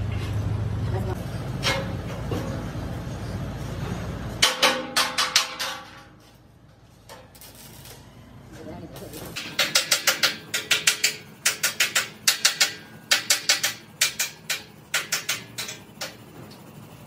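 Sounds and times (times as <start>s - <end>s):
hammer tapping steel tank: 4.4s - 6.0s, 9.4s - 16.2s.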